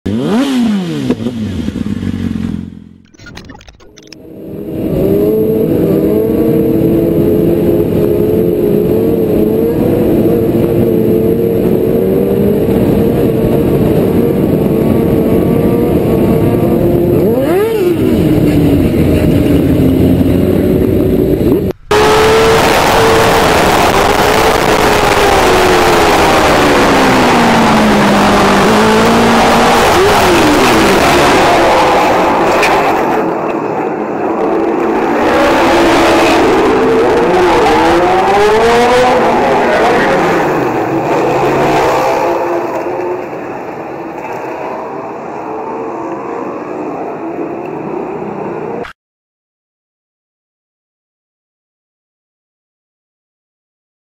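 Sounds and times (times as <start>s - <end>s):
motorcycle engine running: 1.0s - 3.0s, 4.2s - 23.2s
rushing wind noise: 4.4s - 44.1s.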